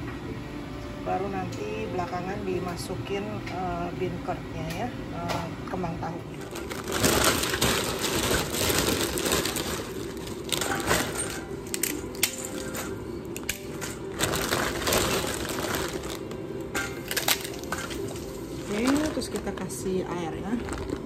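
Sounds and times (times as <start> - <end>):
plastic packaging crinkling: 6.3 - 21.0
dried bean curd sticks snapping: 11.7 - 12.7.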